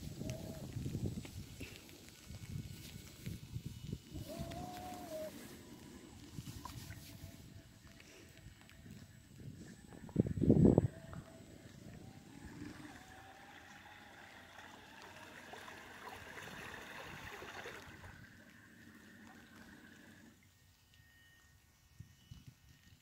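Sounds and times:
water splashing hiss: 0:00.0 - 0:09.1, 0:11.7 - 0:20.4
small boat motor whining: 0:03.9 - 0:22.9.

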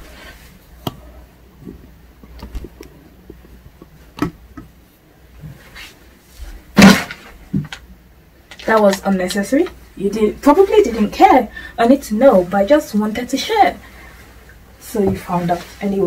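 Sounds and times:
rustling of person moving: 0:00.0 - 0:07.8, 0:13.5 - 0:16.0.

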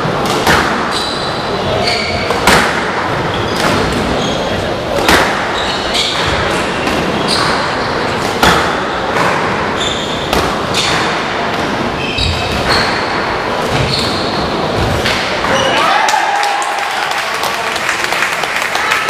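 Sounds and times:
squash ball hitting rackets and walls: 0:00.0 - 0:15.7
shoes squeaking on wooden floor: 0:00.9 - 0:02.4, 0:03.3 - 0:04.7, 0:09.7 - 0:11.0, 0:11.9 - 0:14.8.

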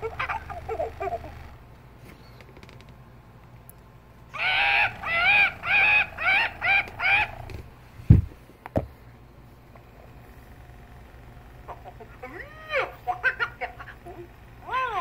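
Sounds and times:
toy electronic voice calls: 0:04.4 - 0:07.6, 0:11.6 - 0:15.0
handling knocks: 0:06.9 - 0:09.0.

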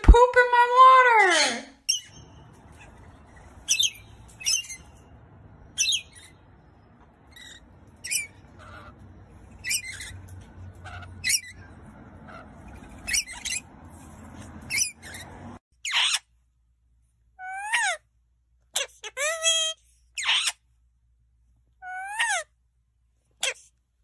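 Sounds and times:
lorikeets calling: 0:01.8 - 0:13.7, 0:14.7 - 0:16.2
faint low rumble: 0:02.1 - 0:15.6.

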